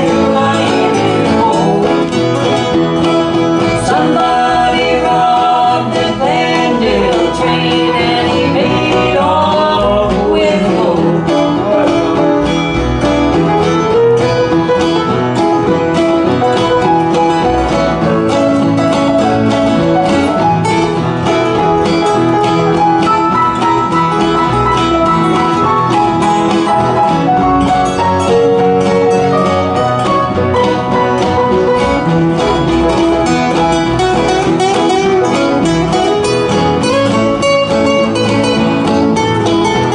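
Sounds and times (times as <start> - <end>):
woman singing: 0.0 - 2.2, 3.6 - 12.4
electric guitar: 0.0 - 39.9
strummed acoustic guitars: 0.0 - 39.9.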